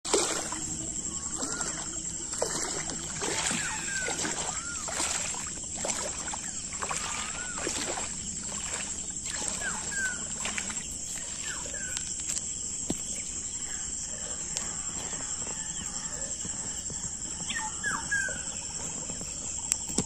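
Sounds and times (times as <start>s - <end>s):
high-pitched insect drone: 0.2s - 20.0s
chirping bird calls: 17.4s - 18.9s.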